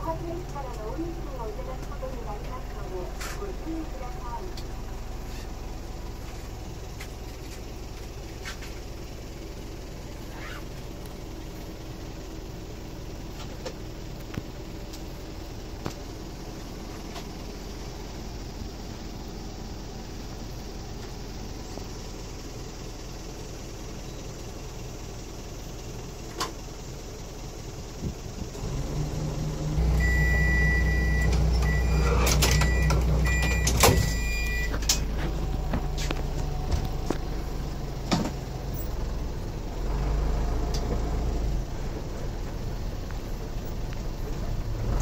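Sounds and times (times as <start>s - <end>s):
diesel engine rumbling: 0.0s - 45.0s
high electronic beeps: 30.0s - 34.8s.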